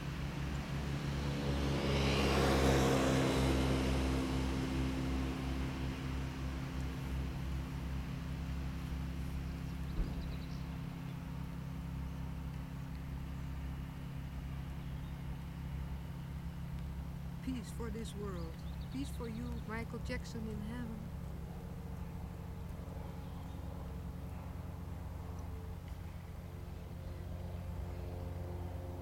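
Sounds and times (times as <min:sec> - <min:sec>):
car passing: 0:00.0 - 0:09.9
steady low hum: 0:00.0 - 0:29.0.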